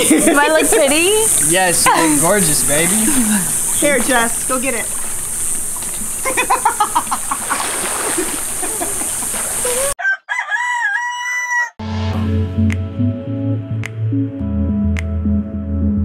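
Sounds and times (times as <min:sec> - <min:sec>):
excited voices: 0:00.0 - 0:04.8
pool water splashing: 0:00.0 - 0:10.0
rooster crowing: 0:09.6 - 0:11.8
music: 0:11.8 - 0:16.0.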